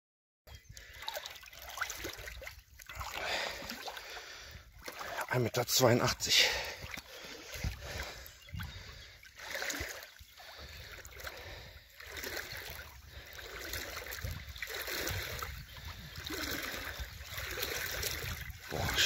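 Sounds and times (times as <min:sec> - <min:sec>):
shallow water sloshing: 0:00.7 - 0:19.0
wind on microphone: 0:07.5 - 0:09.2, 0:12.4 - 0:19.0.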